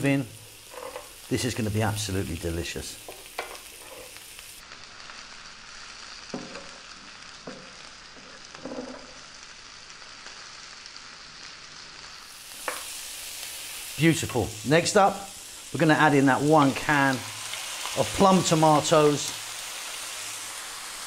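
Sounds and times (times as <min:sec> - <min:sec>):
vegetables sizzling in a pan: 0:00.0 - 0:21.0
wooden spoon scraping a pan: 0:00.6 - 0:01.1, 0:03.1 - 0:04.2.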